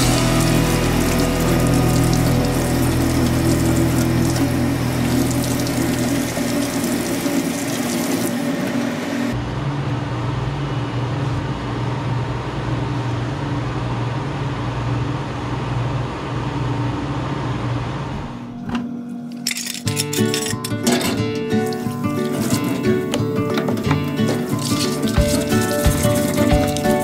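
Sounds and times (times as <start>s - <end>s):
low mechanical hum: 0.0s - 27.0s
tap water running into sink: 0.2s - 9.0s, 24.0s - 27.0s.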